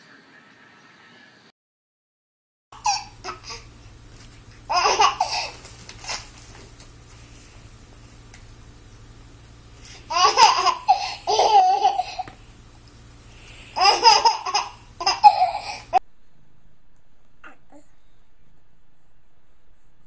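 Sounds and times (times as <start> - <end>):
baby laughing: 2.8 - 3.7, 4.7 - 6.3, 10.1 - 12.4, 13.8 - 16.0.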